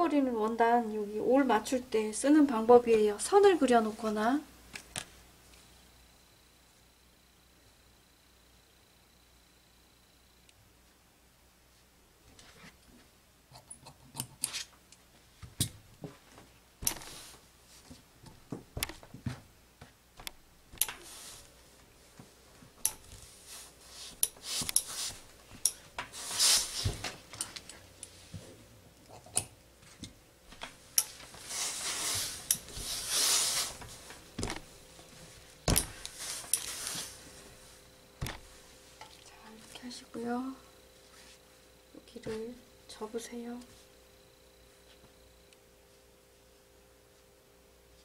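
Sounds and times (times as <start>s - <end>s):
steam hissing: 31.4s - 33.8s.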